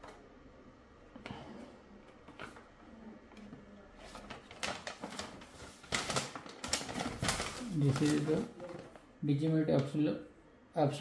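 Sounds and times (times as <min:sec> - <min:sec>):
paper rustling and crinkling: 0:02.0 - 0:09.1.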